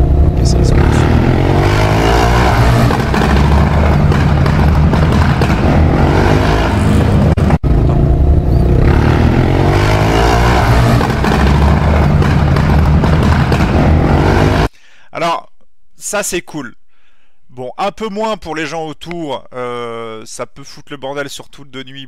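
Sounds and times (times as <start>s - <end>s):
motorcycle revving: 0.0s - 14.7s.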